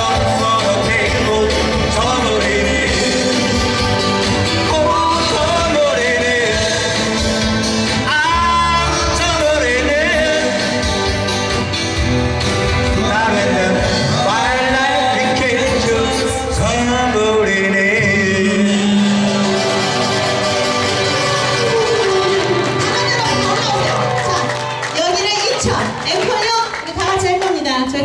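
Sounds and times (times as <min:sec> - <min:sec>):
person singing: 0:00.0 - 0:11.2, 0:12.7 - 0:22.9
strummed guitars: 0:00.0 - 0:25.0.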